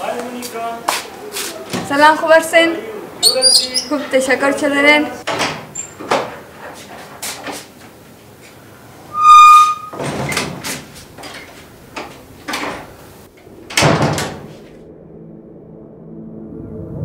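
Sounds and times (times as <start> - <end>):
door hinge squeaking: 3.2 - 4.0, 5.7 - 6.1, 9.1 - 10.5
door closing with heavy thud: 5.3 - 6.4, 9.7 - 10.9, 13.7 - 14.5.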